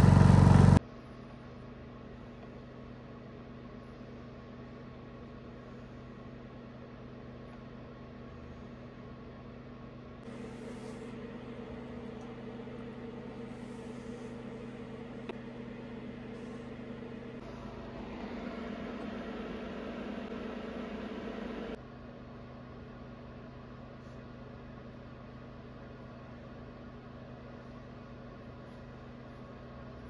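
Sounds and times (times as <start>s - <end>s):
machinery humming: 0.0s - 0.8s, 2.7s - 21.8s.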